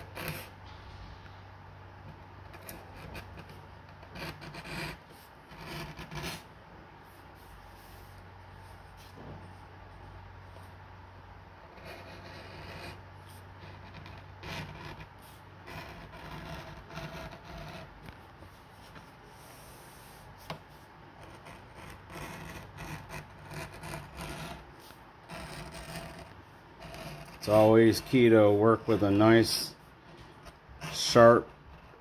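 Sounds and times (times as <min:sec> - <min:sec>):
edge beveler scraping leather: 0:02.6 - 0:06.4, 0:11.7 - 0:13.0, 0:13.6 - 0:17.9, 0:21.3 - 0:29.6.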